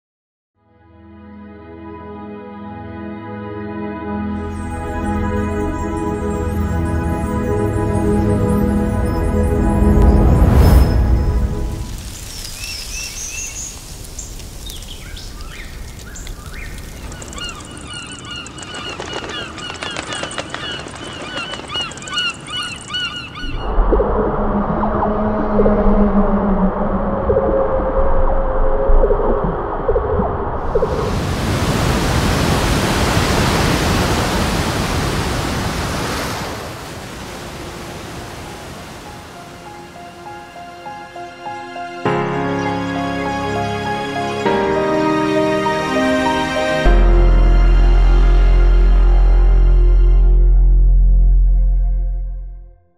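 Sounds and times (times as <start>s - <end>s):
gulls calling: 12.0s - 23.7s
ocean wave crashing: 30.6s - 44.4s.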